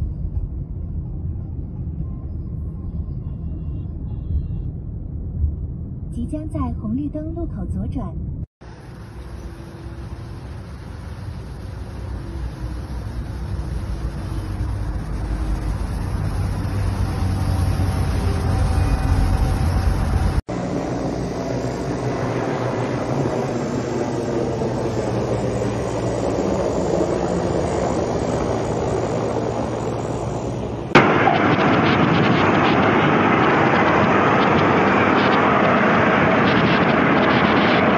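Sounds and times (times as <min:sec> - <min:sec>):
armoured vehicle engines rumbling: 0:08.2 - 0:37.9
helicopter engine and rotor: 0:08.6 - 0:37.9.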